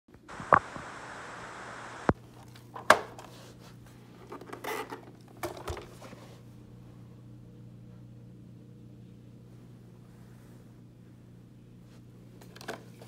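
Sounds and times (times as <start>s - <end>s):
steady hiss: 0.2s - 2.2s.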